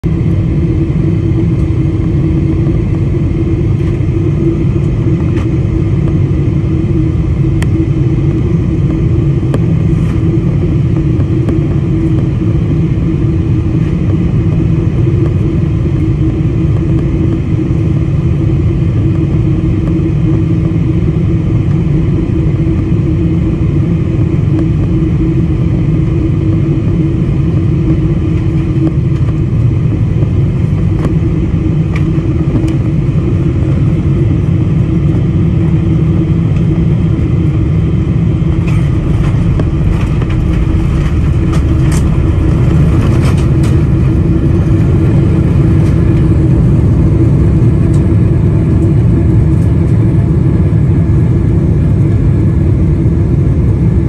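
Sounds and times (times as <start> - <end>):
jet engine drone in cabin: 0.0 - 54.0
constant tone: 0.1 - 54.0
rushing air: 37.1 - 49.2.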